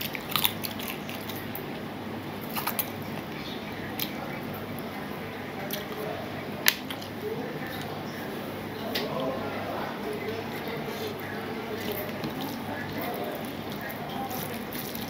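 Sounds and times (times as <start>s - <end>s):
wet chewing and lip-smacking: 0.0s - 1.8s, 2.4s - 3.4s, 11.8s - 15.0s
steady low hum: 0.0s - 15.0s.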